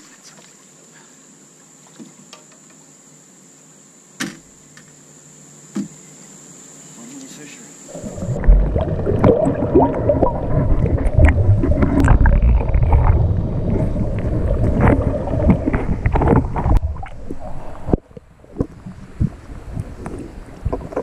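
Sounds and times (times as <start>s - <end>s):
muffled underwater rumble: 7.9s - 21.0s
water sloshing and gurgling: 7.9s - 21.0s
knocks and splashes: 8.0s - 21.0s.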